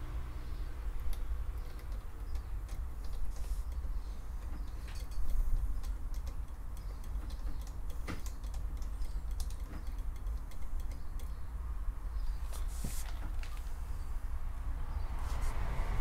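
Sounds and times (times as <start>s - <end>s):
fingers tapping carburettors: 0.8s - 12.3s.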